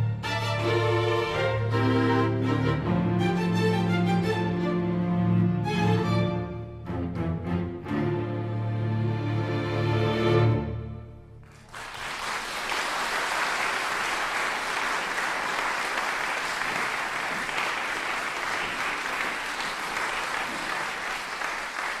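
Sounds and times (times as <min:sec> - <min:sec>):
music: 0:00.0 - 0:11.5
audience applause: 0:11.4 - 0:22.0.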